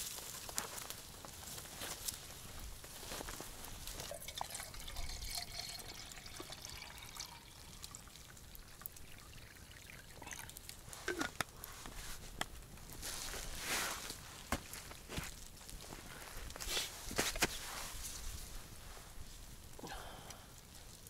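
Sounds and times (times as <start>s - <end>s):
faint liquid trickle: 3.8s - 11.7s.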